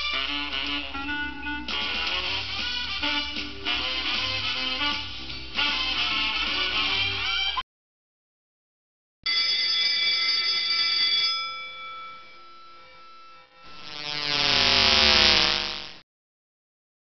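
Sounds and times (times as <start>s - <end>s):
bright bell-like ring: 9.2s - 13.8s.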